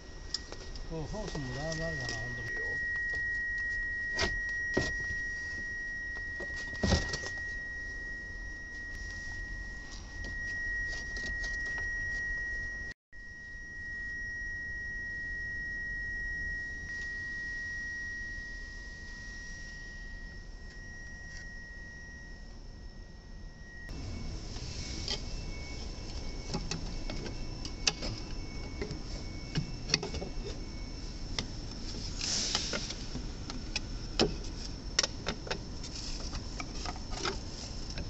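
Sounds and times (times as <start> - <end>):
high-pitched whine: 0.0 - 38.0.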